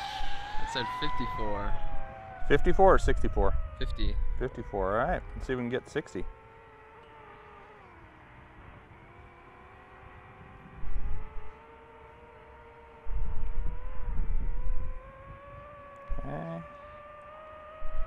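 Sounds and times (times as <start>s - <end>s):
wind rumble on microphone: 0.0s - 6.5s, 8.4s - 18.0s
drone motors whining: 0.0s - 18.0s.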